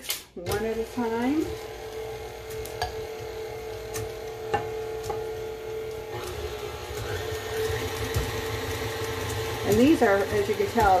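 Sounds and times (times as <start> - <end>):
stand mixer motor hum: 0.5 - 11.0.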